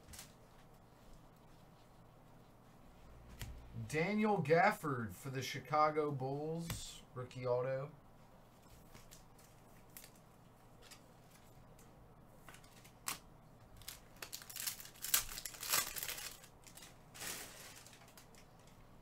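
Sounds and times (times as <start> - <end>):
foil wrapper crinkling and tearing: 13.8 - 18.7.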